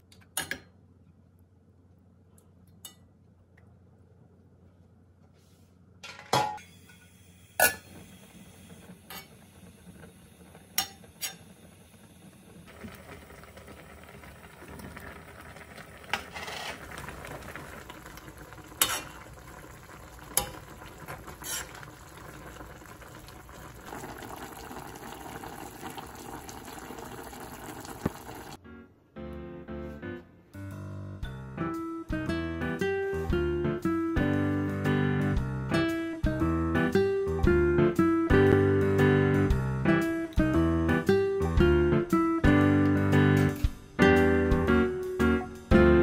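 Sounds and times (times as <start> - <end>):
sauce bubbling at a simmer: 7.8 - 28.6.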